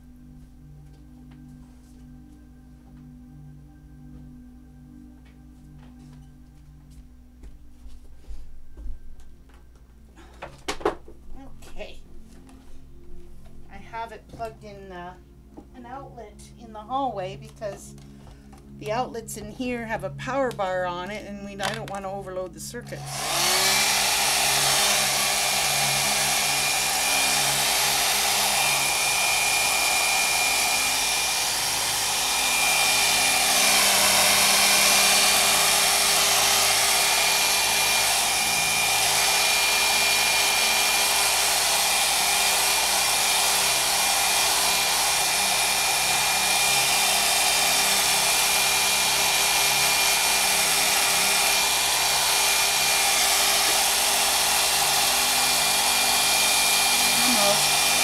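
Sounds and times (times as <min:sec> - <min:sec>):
hair dryer running: 0:22.8 - 0:58.0.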